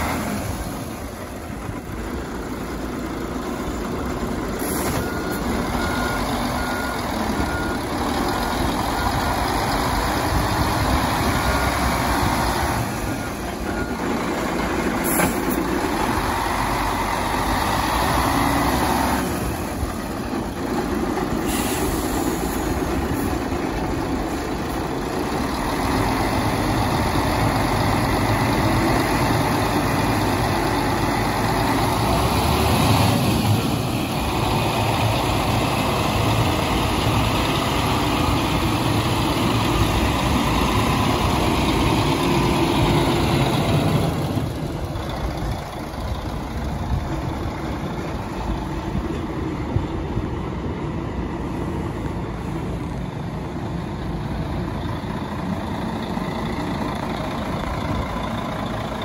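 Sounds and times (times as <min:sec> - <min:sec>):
truck diesel engine idling: 0:00.0 - 0:59.0.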